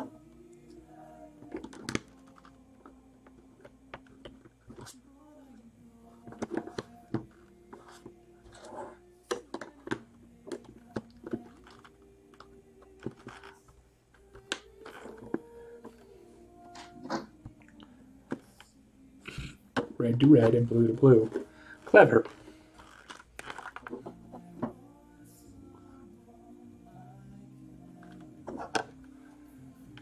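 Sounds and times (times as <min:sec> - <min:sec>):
soft background music: 0:00.0 - 0:30.0
plastic bricks clicking and clattering: 0:21.3 - 0:24.1.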